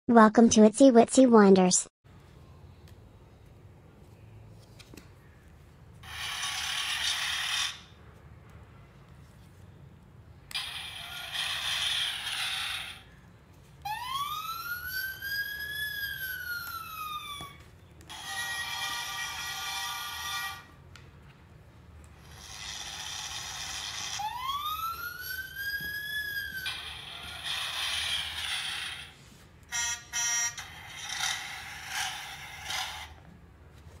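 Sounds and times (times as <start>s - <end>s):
siren wail: 13.8s - 18.6s, 23.8s - 28.4s.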